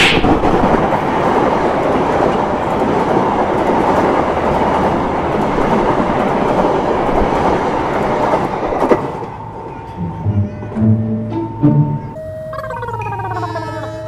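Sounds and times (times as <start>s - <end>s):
train wheels rushing on rails: 0.0s - 10.3s.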